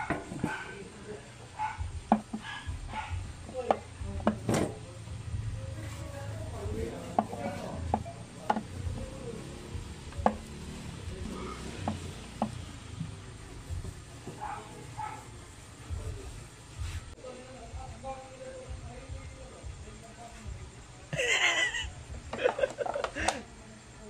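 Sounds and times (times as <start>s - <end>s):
cloth rag rubbing on plastic: 5.6s - 17.2s.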